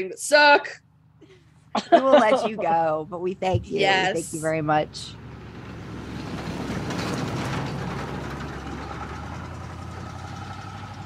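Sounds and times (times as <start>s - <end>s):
car engine idling: 0.2s - 11.0s.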